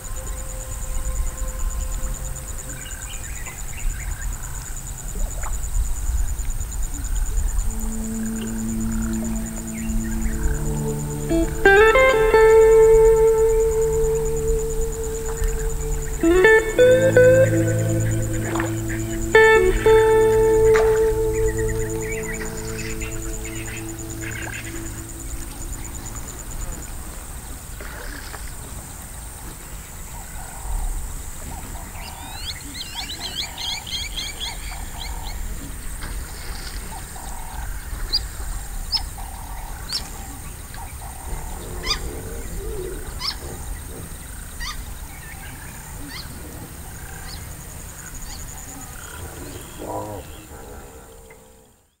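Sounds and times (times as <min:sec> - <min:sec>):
steady high-pitched hum: 0:07.3 - 0:27.3
lower animal calls: 0:07.6 - 0:26.7.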